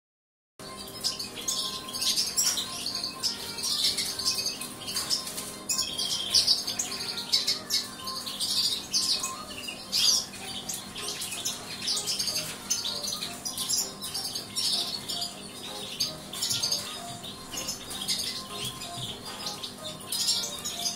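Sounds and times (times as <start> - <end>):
finches chirping and twittering: 0.6 - 20.9.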